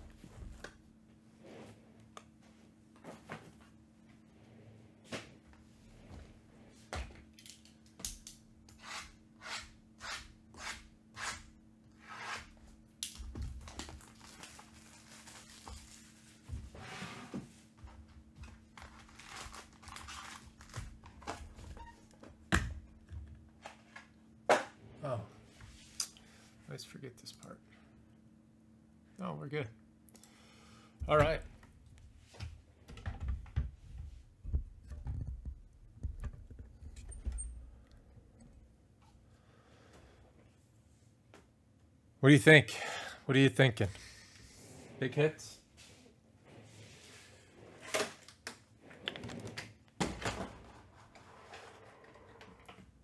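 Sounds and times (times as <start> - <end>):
foil packs crinkling: 13.6 - 16.2, 18.8 - 21.3.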